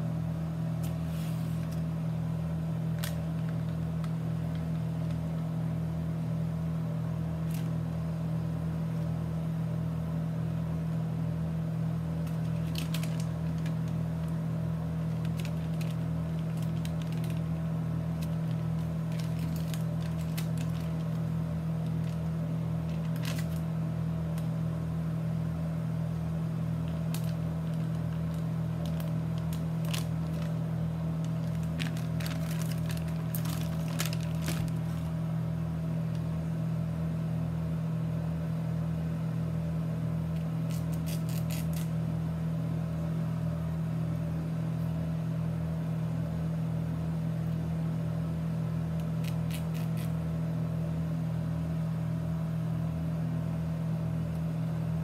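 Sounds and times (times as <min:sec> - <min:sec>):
steady low hum: 0:00.0 - 0:55.0
packet crinkling: 0:02.9 - 0:05.2, 0:12.2 - 0:14.4, 0:15.0 - 0:23.7, 0:26.8 - 0:35.2, 0:40.6 - 0:41.9, 0:49.0 - 0:50.2.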